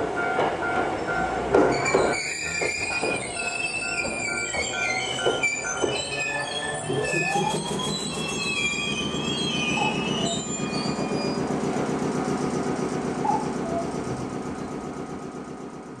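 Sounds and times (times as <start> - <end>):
streetcar rolling rumble: 0.0 - 16.0
streetcar wheels squealing: 0.3 - 14.9.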